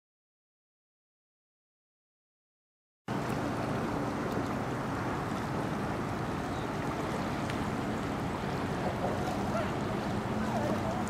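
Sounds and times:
water washing against stone shore: 3.1 - 11.0.

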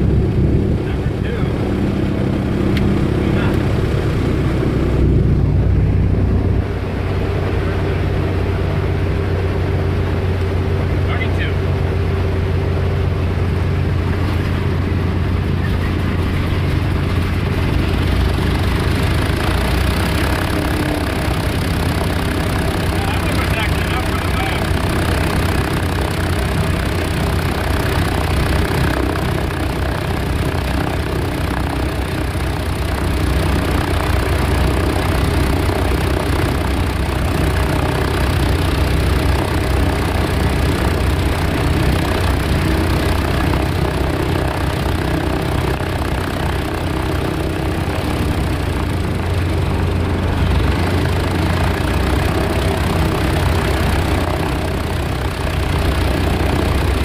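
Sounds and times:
radial engines idling: 18.2 - 57.0.

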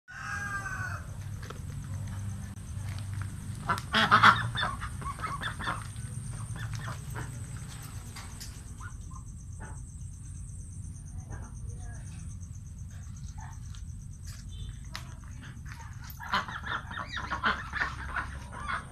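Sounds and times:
ducks quacking: 3.5 - 8.0, 16.0 - 18.9.

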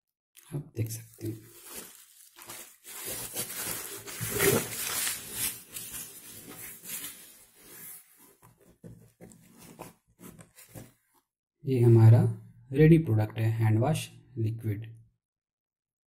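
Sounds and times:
bubble wrap crinkling: 0.4 - 10.9.

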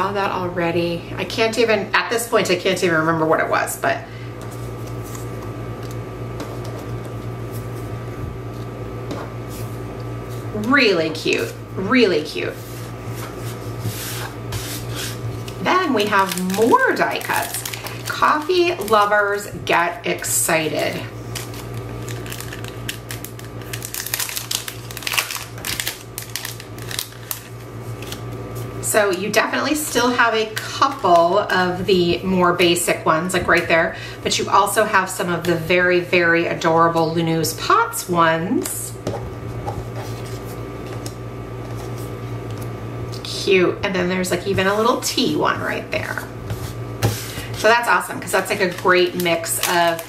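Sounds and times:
steady low hum: 0.0 - 50.0
plastic sleeve crinkling and rustling: 12.4 - 31.5, 46.0 - 50.0.

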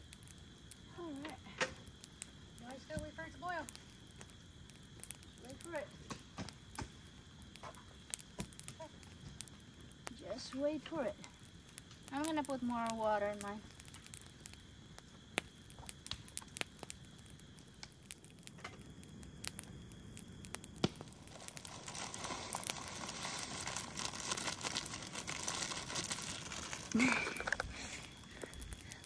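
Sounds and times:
plastic packet crinkling: 21.1 - 28.7
dry food pouring into pot: 21.2 - 27.6.

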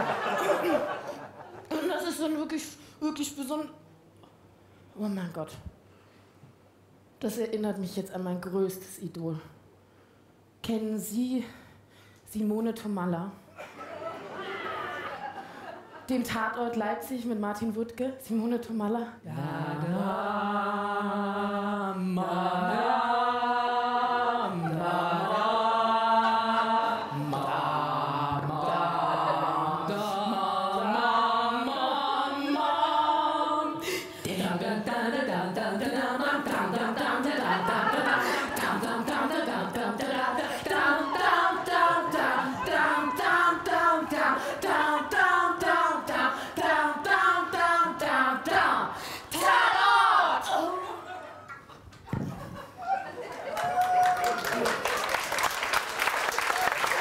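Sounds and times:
women singing a slow chant: 19.1 - 51.2.

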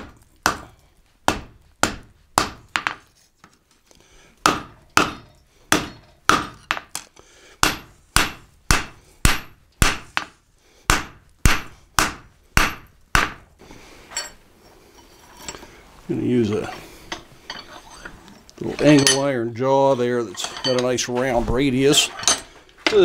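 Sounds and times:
hammer striking steel on anvil: 4.4 - 7.0, 7.6 - 10.3, 10.9 - 13.4.

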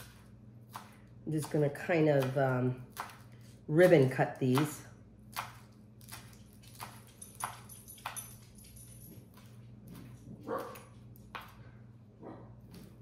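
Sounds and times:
knife chopping on wooden board: 0.0 - 8.2.

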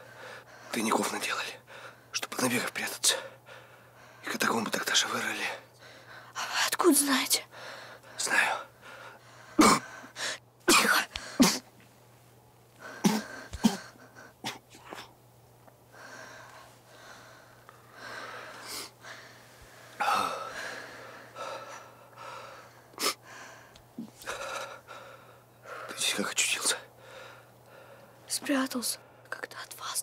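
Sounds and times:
person breathing hard: 7.5 - 10.4, 15.9 - 25.9, 27.0 - 28.1.

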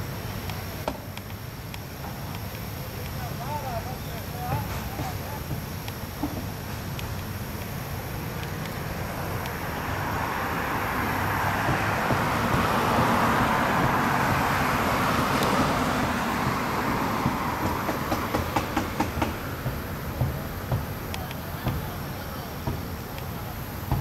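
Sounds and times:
vehicle passing by: 8.9 - 19.9.

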